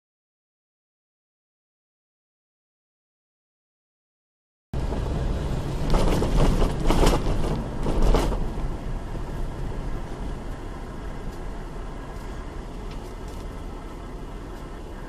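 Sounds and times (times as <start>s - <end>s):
vehicle road and engine rumble: 4.8s - 15.0s.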